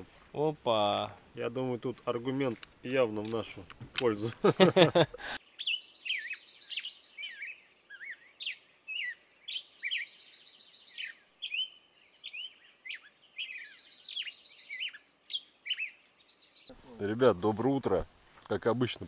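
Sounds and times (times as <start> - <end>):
songbirds chirping: 0.0 - 19.0
rapid bird trill: 5.4 - 16.8.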